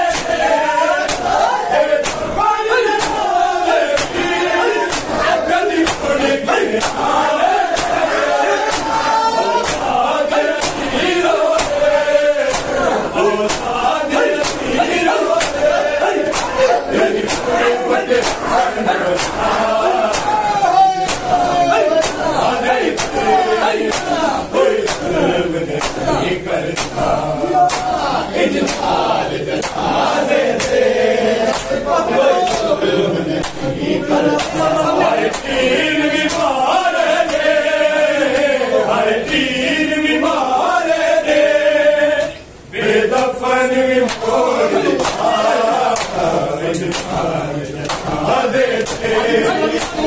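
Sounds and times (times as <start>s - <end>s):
men chanting in unison: 0.0s - 50.0s
hands slapping bare chests: 0.1s - 2.3s, 3.0s - 3.3s, 3.9s - 4.2s, 4.9s - 5.2s, 5.8s - 6.1s, 6.8s - 8.0s, 8.6s - 9.0s, 9.6s - 10.0s, 10.6s - 10.9s, 11.5s - 11.8s, 12.5s - 12.8s, 13.5s - 14.7s, 15.3s - 16.7s, 17.3s - 17.5s, 18.2s - 20.4s, 21.0s - 21.4s, 22.0s - 22.3s, 23.0s - 23.2s, 23.9s - 24.2s, 24.9s - 25.1s, 25.8s - 26.0s, 26.8s - 27.0s, 27.6s - 27.9s, 45.0s - 45.2s, 46.0s - 46.2s, 46.9s - 47.2s, 48.8s - 49.0s.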